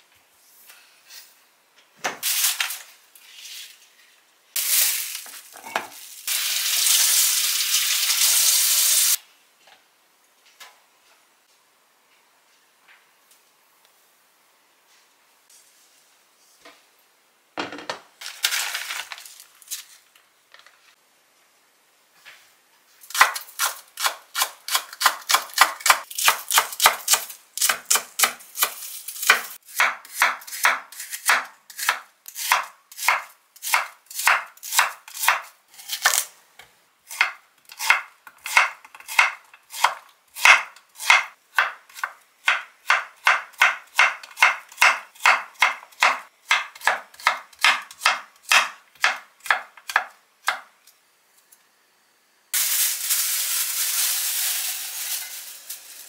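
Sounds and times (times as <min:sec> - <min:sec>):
knife chopping on wooden board: 0:37.2 - 0:50.6.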